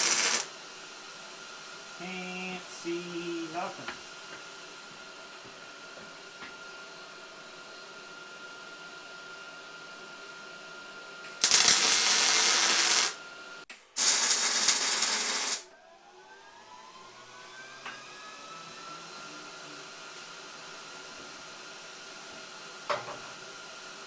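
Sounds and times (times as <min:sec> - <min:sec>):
welding arc hissing: 0:00.0 - 0:00.5, 0:02.0 - 0:03.8, 0:11.3 - 0:13.2, 0:13.8 - 0:15.7.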